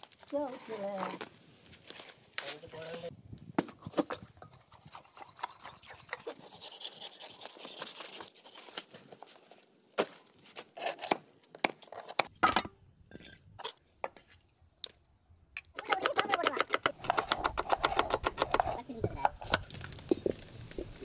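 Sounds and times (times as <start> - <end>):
knife scraping through skin: 4.5 - 8.9
knife chopping on wooden block: 15.8 - 19.6.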